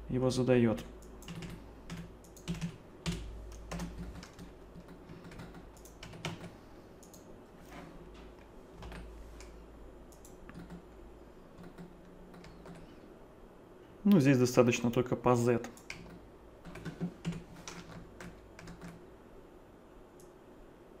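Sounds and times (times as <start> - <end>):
keyboard typing: 1.0 - 10.9, 11.6 - 13.0, 15.6 - 19.0.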